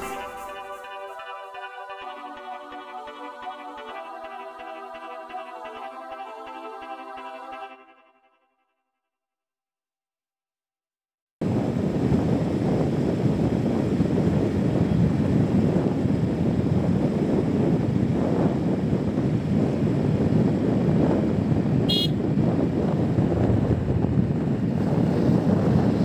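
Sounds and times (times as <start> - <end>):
wind and road noise: 11.4 - 26.0
car horn beep: 21.9 - 22.2.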